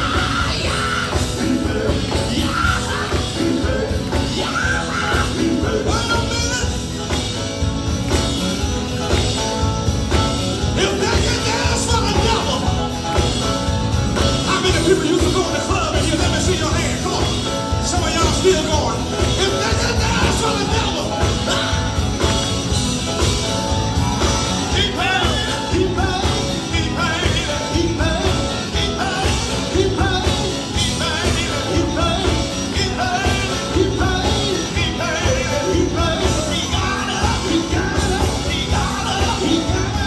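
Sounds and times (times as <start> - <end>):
person singing through pa: 0.0 - 7.1, 24.6 - 40.0
live band playing up-tempo: 0.0 - 40.0.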